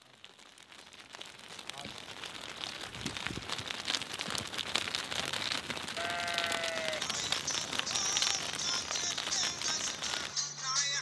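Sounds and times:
hooves clicking on pavement: 0.0s - 11.0s
sheep calling: 6.0s - 8.6s.

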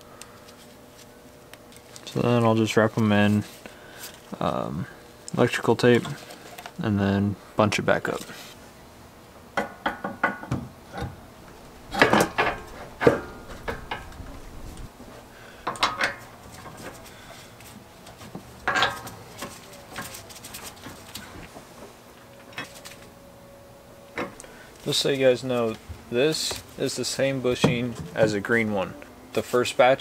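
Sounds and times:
metal parts clinking and knocking: 11.9s - 14.6s, 18.6s - 19.1s.

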